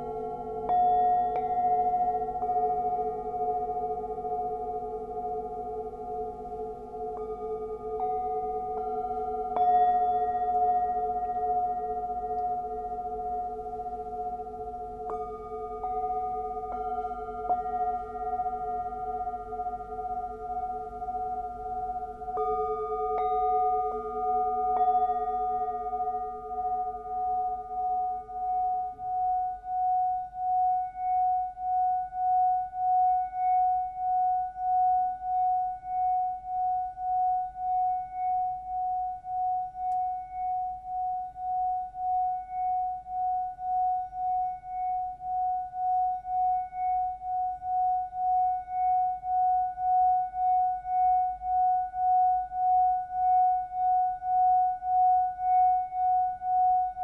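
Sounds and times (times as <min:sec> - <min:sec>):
lower singing bowl tones: 0:00.0 - 0:57.0
singing bowl wavering tone: 0:00.0 - 0:57.0.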